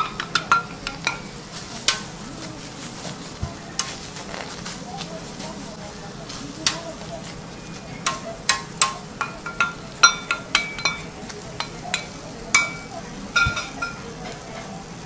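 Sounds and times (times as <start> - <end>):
metal spatula clinking on griddle: 0.0 - 2.2, 3.8 - 4.0, 6.3 - 7.1, 7.7 - 14.8
batter sizzling on hot plate: 0.0 - 15.0.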